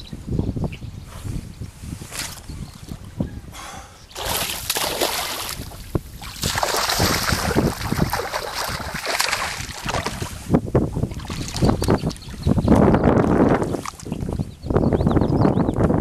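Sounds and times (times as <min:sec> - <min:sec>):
wind rumble on microphone: 0:00.0 - 0:16.0
water splashing and sloshing: 0:04.1 - 0:14.4.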